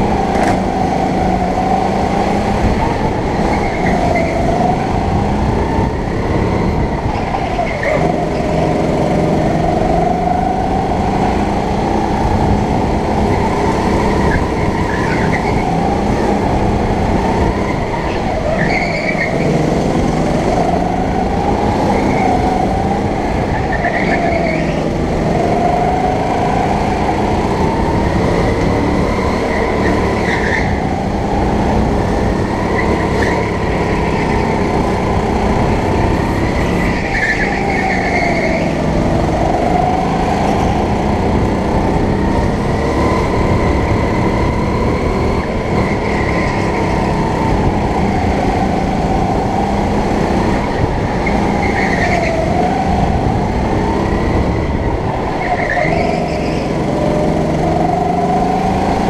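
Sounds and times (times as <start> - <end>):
go-kart motor running: 0.0 - 59.0.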